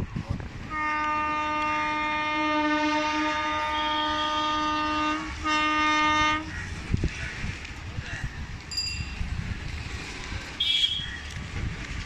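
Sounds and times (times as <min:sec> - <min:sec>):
locomotive horn blasts: 0:00.7 - 0:06.5, 0:10.6 - 0:11.2.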